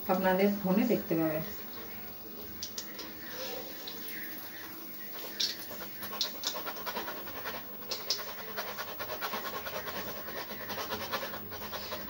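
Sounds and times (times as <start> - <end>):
hot oil sizzling and crackling: 0.8 - 9.6.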